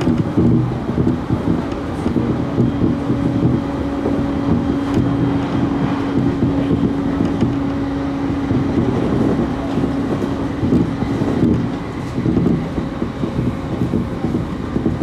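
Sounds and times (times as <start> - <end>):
held hum: 0.0 - 15.0
train wheels rumbling on rail: 0.0 - 15.0.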